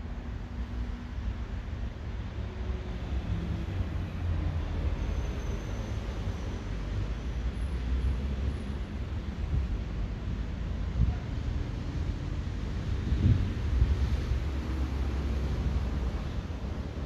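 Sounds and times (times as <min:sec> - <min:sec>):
wind blowing with low rumble: 0:08.8 - 0:17.0.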